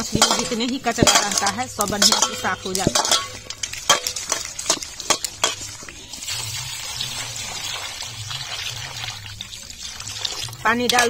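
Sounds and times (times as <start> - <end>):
water splashing into bowl: 0.2 - 11.0
fish rubbed against steel bowl: 2.9 - 11.0.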